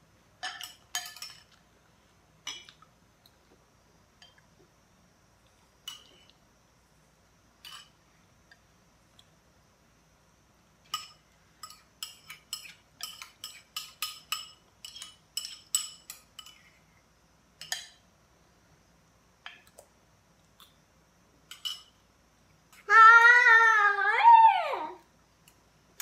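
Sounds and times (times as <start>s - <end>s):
spoons clinking against bowls: 0.4s - 1.6s, 10.9s - 16.7s, 17.6s - 18.0s, 21.5s - 22.0s
high drawn-out vocal sound: 22.9s - 25.0s.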